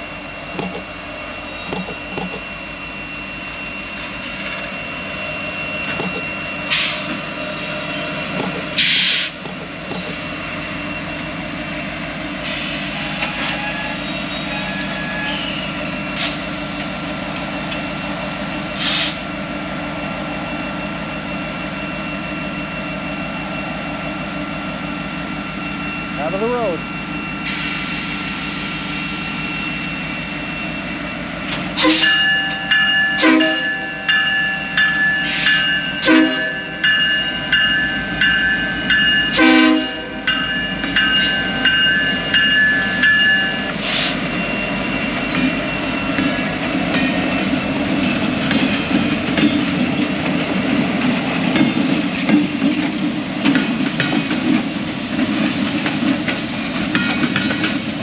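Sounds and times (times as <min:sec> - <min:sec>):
train air horn chord: 0:31.8 - 0:32.2, 0:33.2 - 0:33.8, 0:36.0 - 0:36.6, 0:39.4 - 0:40.1
locomotive engine rumble: 0:36.8 - 0:58.0
wheels clicking over rail joints: 0:45.2 - 0:58.0.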